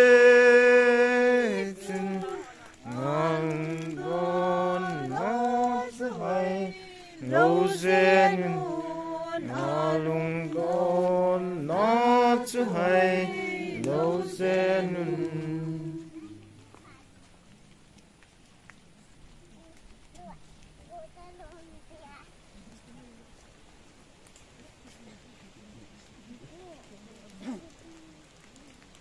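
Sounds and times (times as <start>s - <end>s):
congregation singing a hymn: 0.0s - 16.7s.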